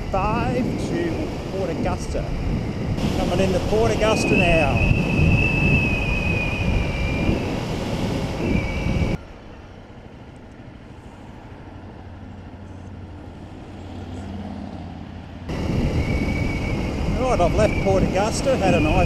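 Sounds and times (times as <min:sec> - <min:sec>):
wind rush: 0:00.0 - 0:09.2, 0:15.4 - 0:19.0
motorcycle engine drone: 0:00.0 - 0:11.4
high whistle: 0:03.2 - 0:09.2, 0:15.7 - 0:19.0.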